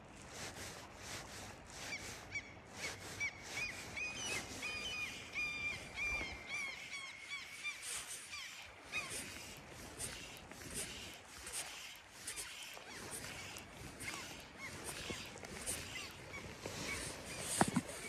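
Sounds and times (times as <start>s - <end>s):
fishing reel drag buzzing: 6.8s - 18.0s.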